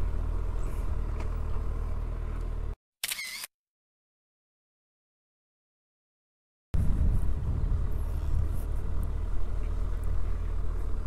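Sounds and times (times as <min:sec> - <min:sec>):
motorcycle engine running: 0:06.8 - 0:11.0.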